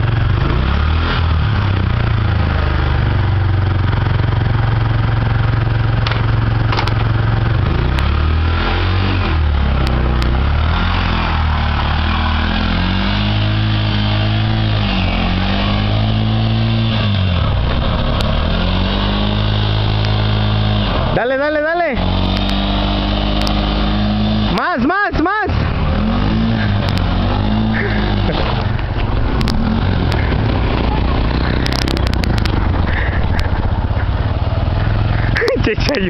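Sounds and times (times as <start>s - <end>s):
small engine running: 0.0s - 24.9s, 25.5s - 36.0s.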